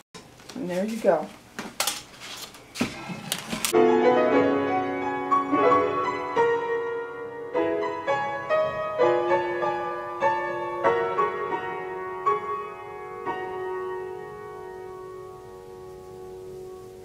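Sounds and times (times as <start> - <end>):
slow piano music: 3.7 - 17.0.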